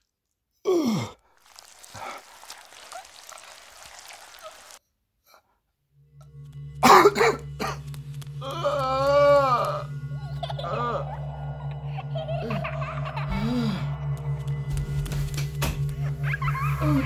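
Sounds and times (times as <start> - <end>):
man moaning: 0.7 - 1.2
low film score drone: 5.8 - 17.0
man coughing harshly: 6.8 - 7.8.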